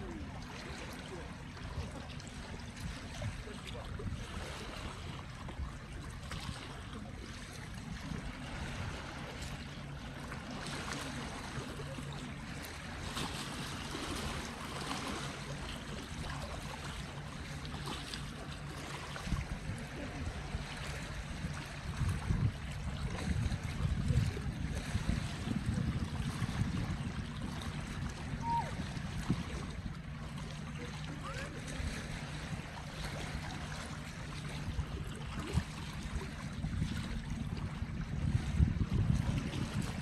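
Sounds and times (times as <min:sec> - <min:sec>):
waves lapping against rocks: 0:00.0 - 0:40.0
wind buffeting microphone: 0:13.7 - 0:30.4, 0:31.2 - 0:40.0.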